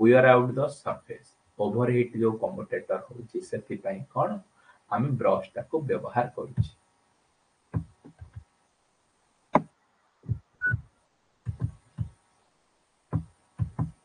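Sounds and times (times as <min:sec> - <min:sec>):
soft dull knocks: 0:07.7 - 0:08.5, 0:11.4 - 0:12.2, 0:13.1 - 0:14.0.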